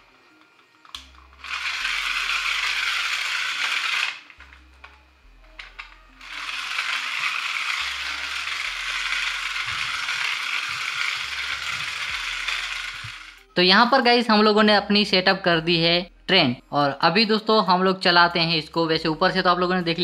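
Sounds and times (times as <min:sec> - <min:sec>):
toy train motor whirring: 0:00.4 - 0:05.0, 0:05.6 - 0:13.5
toy clicks: 0:00.9 - 0:04.5, 0:05.6 - 0:13.4.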